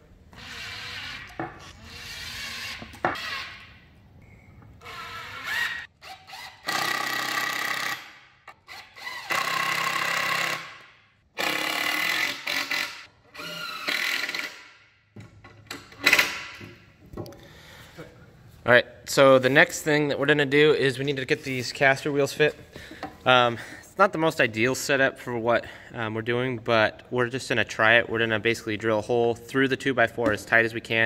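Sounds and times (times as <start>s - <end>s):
drill driving screws: 4.8s - 14.7s.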